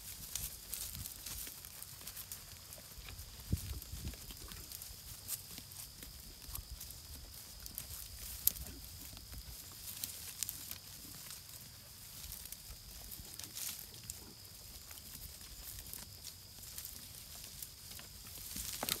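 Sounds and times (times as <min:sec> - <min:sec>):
sheep tearing and chewing plants: 0:00.0 - 0:19.0
plants rustling: 0:15.6 - 0:19.0.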